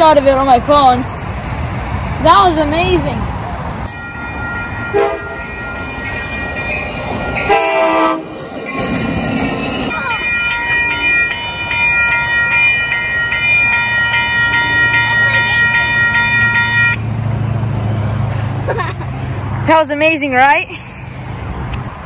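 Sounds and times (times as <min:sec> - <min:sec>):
passenger train rumbling past: 0:00.0 - 0:22.0
railroad crossing bells ringing: 0:03.8 - 0:17.4
train horn blast: 0:04.8 - 0:05.6, 0:07.4 - 0:08.4.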